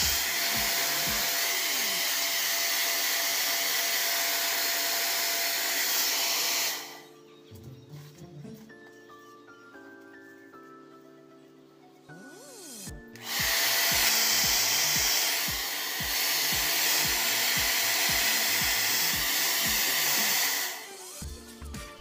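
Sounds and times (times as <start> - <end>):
music with steady beat: 0.0 - 1.6, 7.2 - 22.0
hair dryer blowing: 0.0 - 7.1, 12.7 - 21.3.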